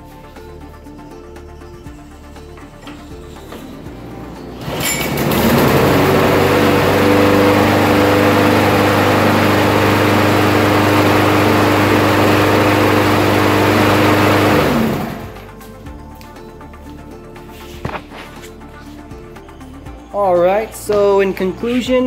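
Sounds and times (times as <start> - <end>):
lawn mower engine running: 3.3 - 15.6.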